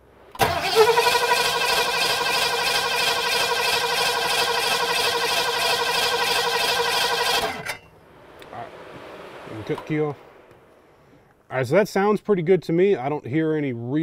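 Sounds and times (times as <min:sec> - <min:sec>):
car engine cranking on starter: 0:00.3 - 0:07.8.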